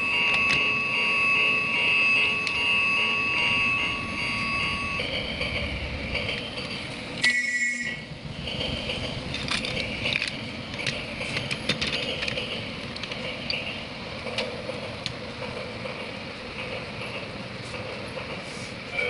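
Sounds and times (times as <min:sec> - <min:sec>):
plastic clicks and clatter: 0:09.3 - 0:12.4.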